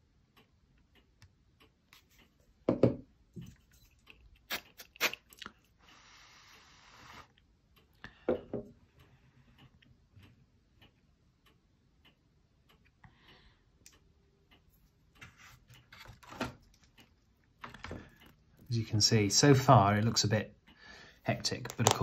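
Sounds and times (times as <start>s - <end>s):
model parts tapping and clicking: 21.2s - 22.0s.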